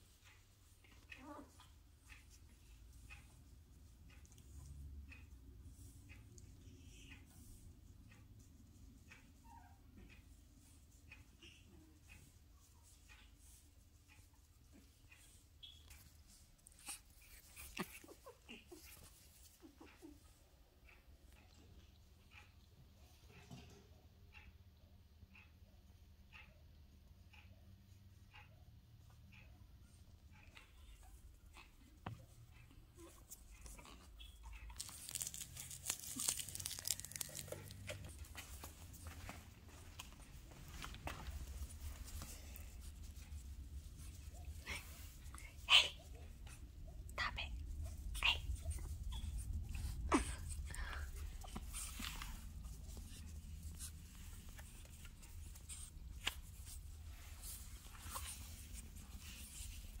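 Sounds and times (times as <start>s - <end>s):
puppies rustling and scratching: 0.0s - 24.2s, 27.9s - 60.0s
plush toy rustling and crinkling: 34.7s - 45.4s, 48.4s - 60.0s.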